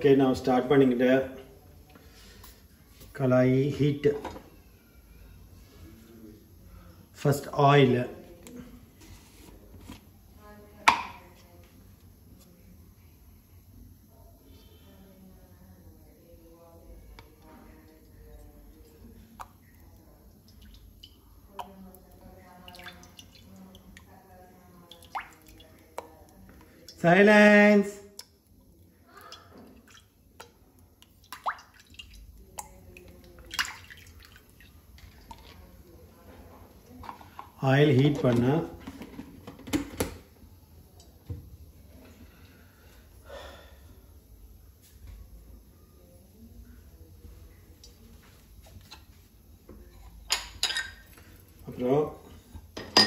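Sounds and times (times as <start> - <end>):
low steady hum: 0.0 - 53.0
oil trickling and dripping into pan: 17.8 - 24.1.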